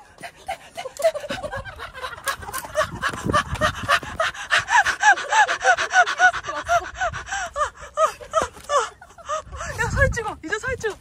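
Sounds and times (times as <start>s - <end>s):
woman laughing in squeals: 0.7s - 9.8s
gasping breaths: 2.3s - 9.9s.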